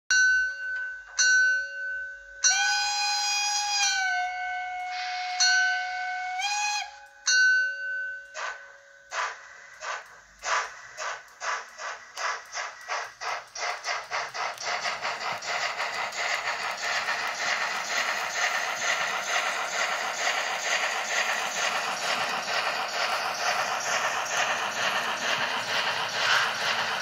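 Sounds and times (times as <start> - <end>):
model train whistle toots: 2.4 - 7.6
steam locomotive chuffing: 2.5 - 7.0, 8.2 - 27.0.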